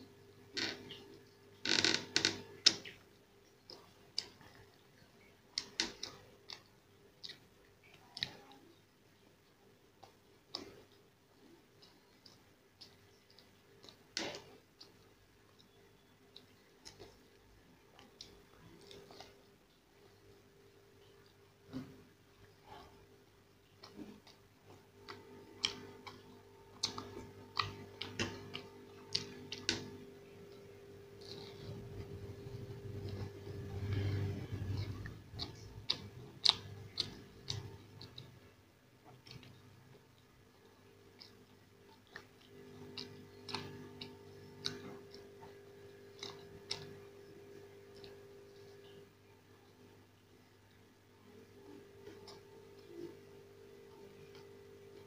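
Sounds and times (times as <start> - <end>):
person chewing food: 0.5 - 49.8, 50.5 - 55.0
crisp food crackling while eaten: 23.7 - 49.1.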